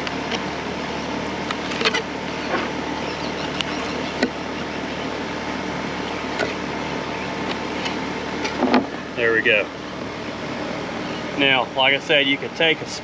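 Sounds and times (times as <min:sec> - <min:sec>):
steady mechanical hum: 0:00.0 - 0:13.0.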